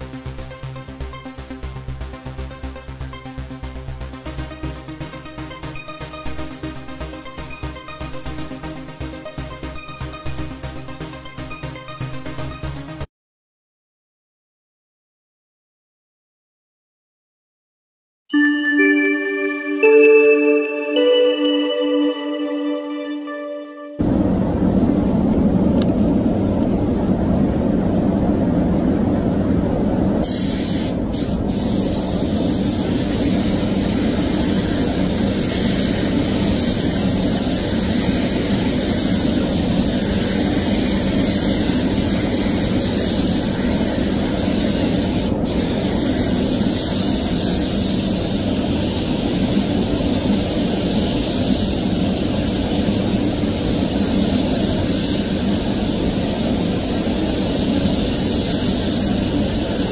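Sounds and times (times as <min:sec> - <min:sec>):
ventilation air noise: 0:24.0 - 0:59.9
spray gun air hiss: 0:30.2 - 0:59.9.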